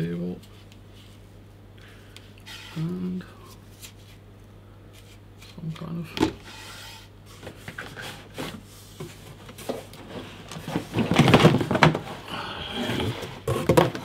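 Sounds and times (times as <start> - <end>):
cardboard box rustling and scraping: 6.4 - 14.0.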